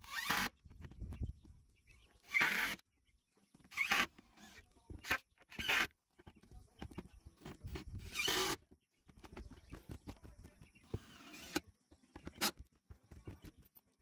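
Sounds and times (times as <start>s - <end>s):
cordless drill driving screws: 0.0s - 0.5s, 2.2s - 2.8s, 8.0s - 8.6s, 11.0s - 11.6s.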